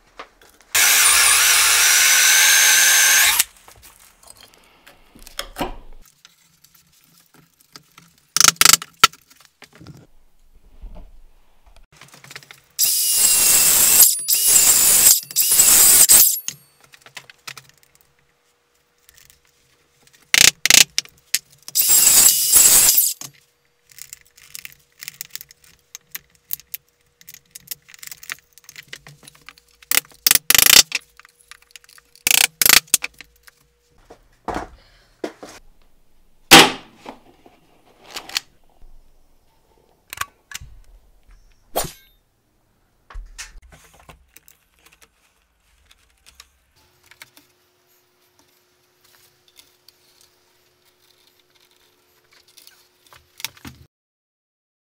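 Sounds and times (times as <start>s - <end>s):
jigsaw cutting wood: 0.8s - 3.5s, 12.8s - 16.4s, 21.8s - 23.2s.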